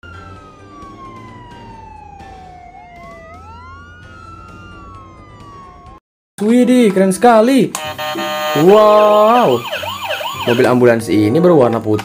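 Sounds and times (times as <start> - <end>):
ambulance siren wailing: 0.0 - 6.0, 7.8 - 11.0.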